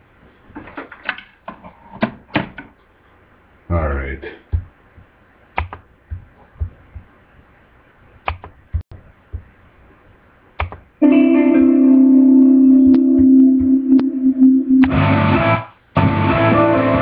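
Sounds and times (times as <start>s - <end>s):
light knocks and taps: 4.5s - 7.1s
held musical chord: 11.0s - 15.4s.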